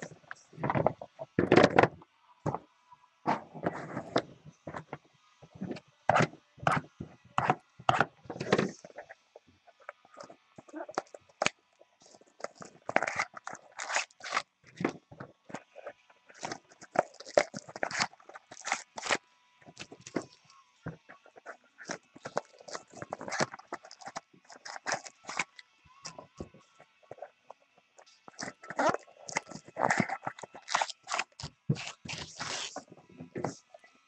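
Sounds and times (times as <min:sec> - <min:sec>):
rustling and crinkling packs: 0:12.1 - 0:20.4, 0:28.3 - 0:33.6.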